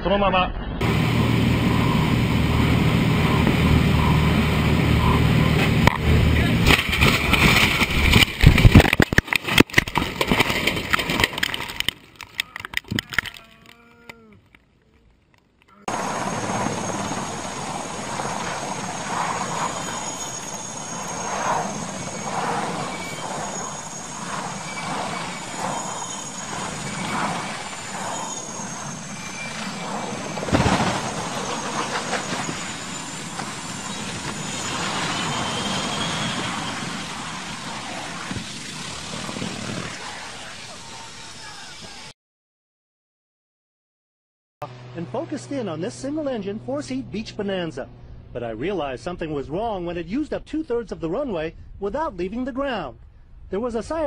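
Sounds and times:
helicopter hovering: 0.8s - 11.5s, 15.9s - 40.8s, 44.6s - 49.0s
plane crashing through trees: 0.8s - 11.9s, 15.9s - 41.9s
sharp crash impact: 6.5s - 10.4s.

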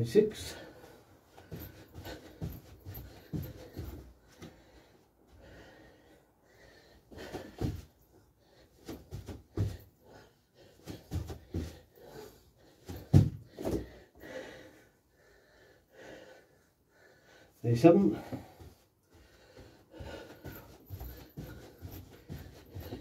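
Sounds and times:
heavy breathing: 0.3s - 23.0s
thuds on floor mat: 12.9s - 13.9s.

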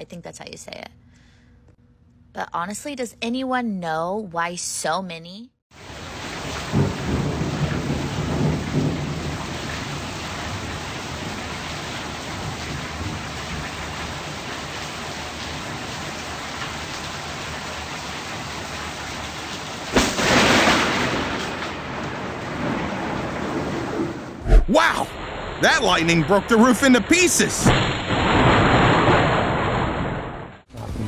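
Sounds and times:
heavy rain falling: 5.8s - 30.5s
loud thunderclap: 6.1s - 13.9s, 19.9s - 30.6s
low thunder rumbling: 6.1s - 14.0s, 19.9s - 26.3s, 27.5s - 30.6s.

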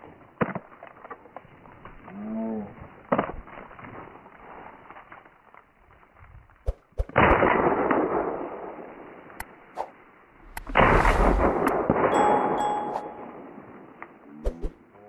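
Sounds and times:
shotgun blasts with echo: 7.0s - 9.1s, 10.4s - 12.2s.

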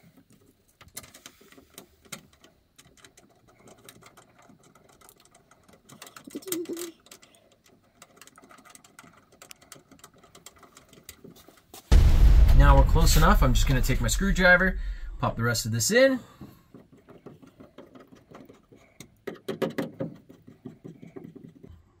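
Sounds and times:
screw clicking and scraping: 0.2s - 11.7s.

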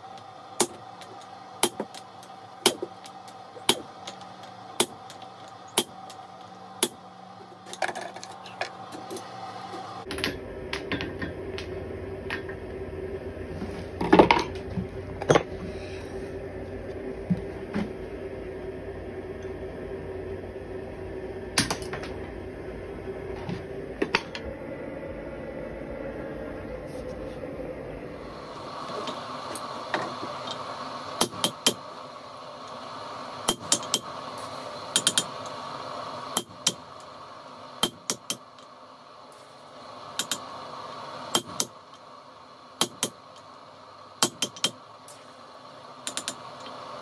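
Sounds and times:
steady hum: 0.0s - 47.0s
hammer striking steel punch: 2.6s - 2.9s.

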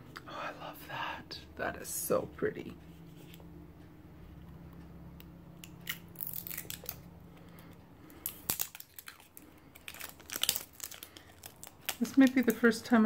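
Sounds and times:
plastic shrink wrap crinkling: 5.6s - 7.1s, 8.1s - 12.9s.

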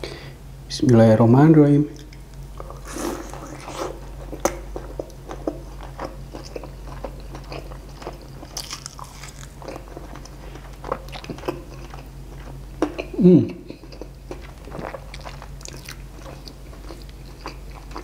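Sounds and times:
low steady hum: 0.0s - 18.0s
close-miked chewing with crackles: 1.9s - 18.0s
crunchy bite into fried chicken: 7.0s - 9.6s.

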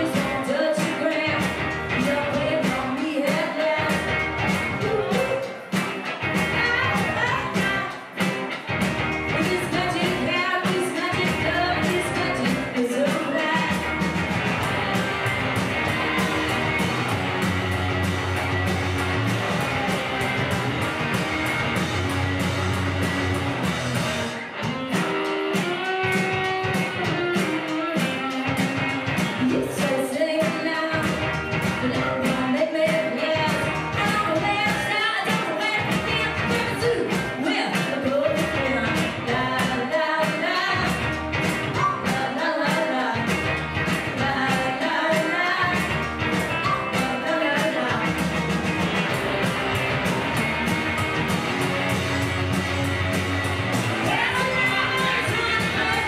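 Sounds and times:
person singing: 0.0s - 4.1s, 4.7s - 5.8s, 25.6s - 31.1s, 31.8s - 41.0s, 46.6s - 48.1s, 54.0s - 56.0s
bass guitar: 0.0s - 56.0s
electric guitars: 0.0s - 56.0s
steady drum beat: 0.0s - 56.0s.

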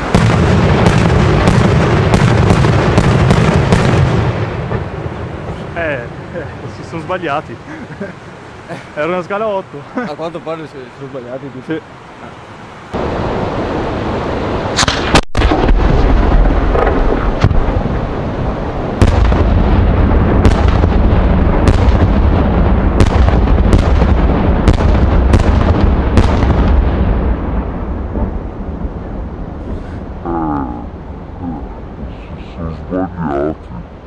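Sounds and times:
firework bang: 0.0s - 5.8s, 14.7s - 18.0s, 19.0s - 28.5s
low rolling rumble: 12.9s - 34.0s.

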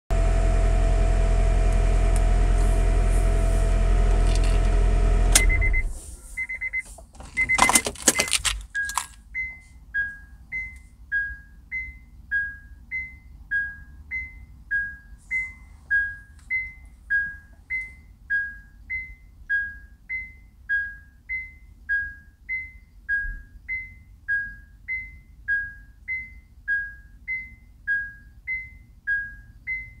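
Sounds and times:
car engine humming: 0.1s - 9.1s
alternating high and low warning beeps: 5.3s - 30.0s.

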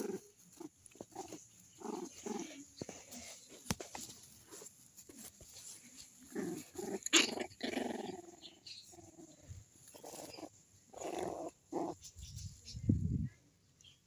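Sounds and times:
dogs growling in play: 0.0s - 3.0s, 6.2s - 12.0s.

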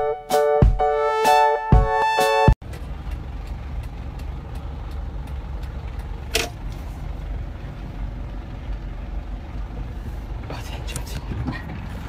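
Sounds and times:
light regular ticking: 2.6s - 6.3s
vehicle engine rumbling: 2.6s - 12.0s.

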